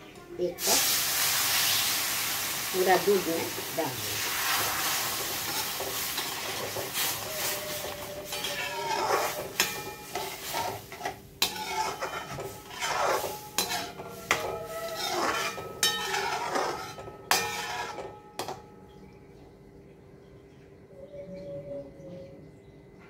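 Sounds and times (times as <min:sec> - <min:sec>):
metal spatula scraping pan: 0:03.2 - 0:18.6
spatula clinking pan: 0:05.1 - 0:18.9.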